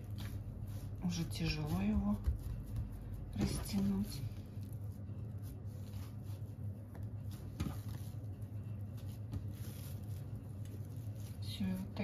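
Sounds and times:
soft dough slaps: 0.0s - 4.2s
dough squishing and patting: 0.0s - 12.0s
low steady hum: 0.0s - 12.0s.

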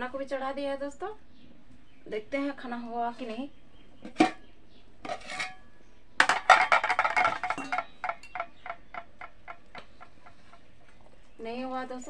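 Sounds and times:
ladle clinking against pot: 4.0s - 9.8s.

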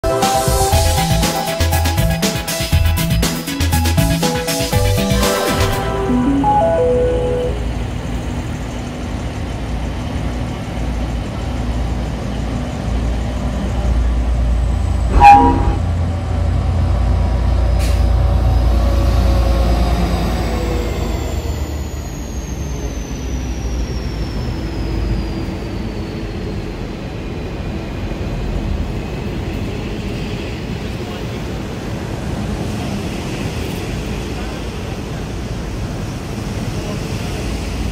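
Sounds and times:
diesel locomotive engine rumble: 5.8s - 22.6s
faint high whine: 15.1s - 16.0s
train horn toot: 15.1s - 16.0s.

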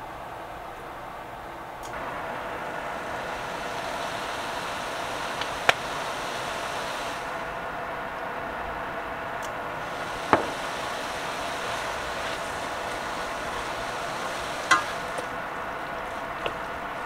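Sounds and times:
food sizzling in a pan: 1.9s - 7.8s, 9.5s - 17.0s.

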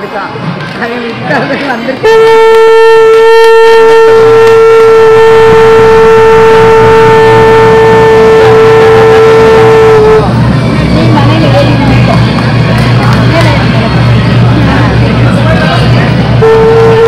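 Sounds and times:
conch shell blown: 2.0s - 10.3s, 16.4s - 17.0s.

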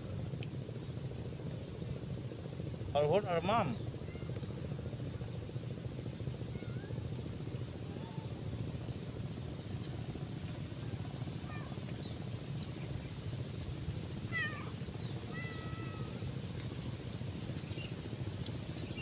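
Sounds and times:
low background rumble: 0.0s - 19.0s
kitten meowing: 14.3s - 16.2s.

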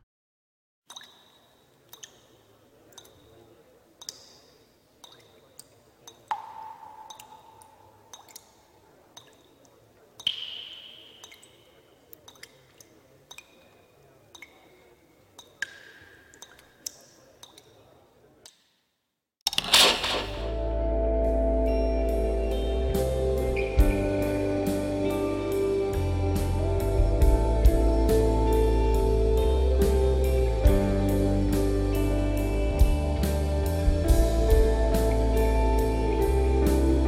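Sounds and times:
water drips plinking: 0.9s - 3.4s, 4.0s - 17.8s
sharp ticks: 5.0s - 8.6s.

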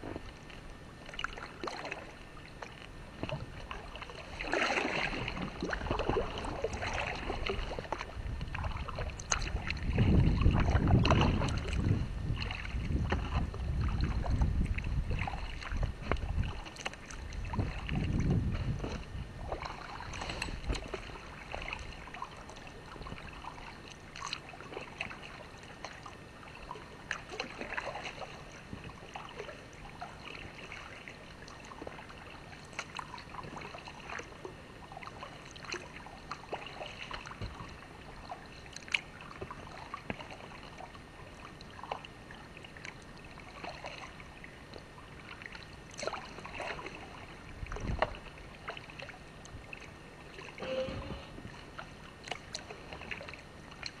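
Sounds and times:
paddle splashing in water: 0.0s - 54.0s
paddle knocks: 50.6s - 51.5s.

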